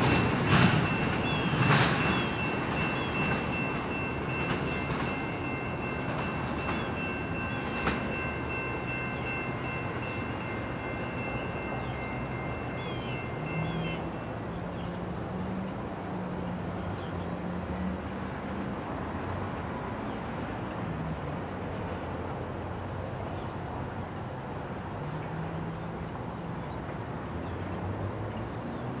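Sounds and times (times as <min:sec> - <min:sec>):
cars passing: 0:00.0 - 0:29.0.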